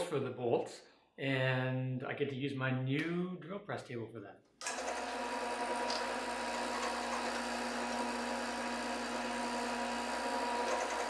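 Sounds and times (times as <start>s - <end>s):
drill press boring wood: 4.6s - 11.0s.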